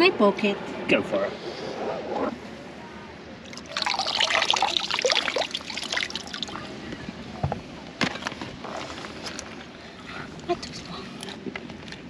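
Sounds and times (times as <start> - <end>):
water trickling and splashing: 3.4 - 6.9.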